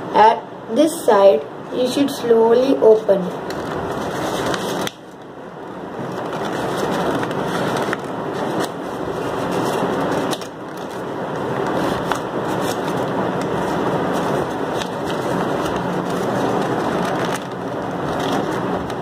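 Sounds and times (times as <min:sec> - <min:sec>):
stiff paper rustling and crinkling: 0:03.4 - 0:05.3, 0:06.0 - 0:19.0.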